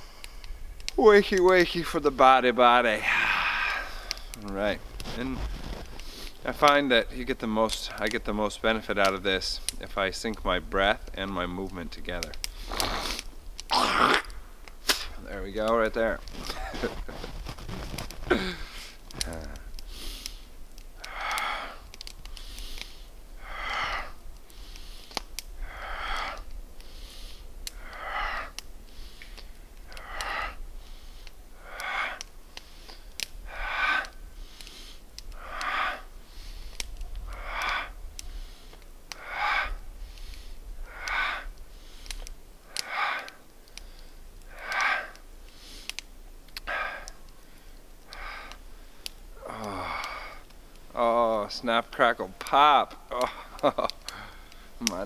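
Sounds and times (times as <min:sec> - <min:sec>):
man breathing hard: 0:00.0 - 0:00.8, 0:02.8 - 0:06.5, 0:16.3 - 0:51.0, 0:52.9 - 0:54.8.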